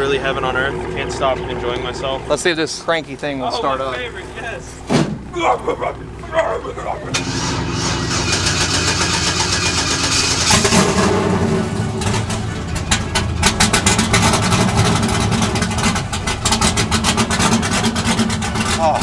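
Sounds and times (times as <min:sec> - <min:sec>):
engine cranking and running roughly: 0:00.0 - 0:19.0.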